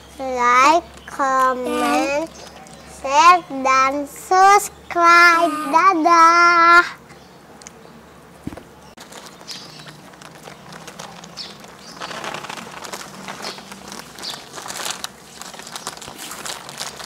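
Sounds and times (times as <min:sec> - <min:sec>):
plastic snack packets crinkling: 0:09.0 - 0:17.0.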